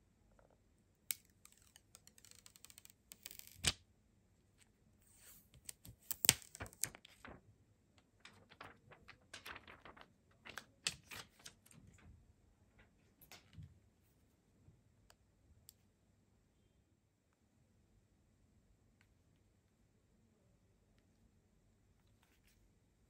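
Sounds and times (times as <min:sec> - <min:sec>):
plastic film peeling off: 0:01.1 - 0:03.8, 0:05.2 - 0:07.4.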